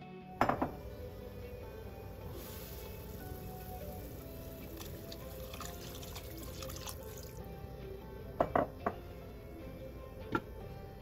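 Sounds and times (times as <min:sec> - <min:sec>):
background music: 0:00.0 - 0:11.0
water pouring into pot: 0:02.2 - 0:07.5.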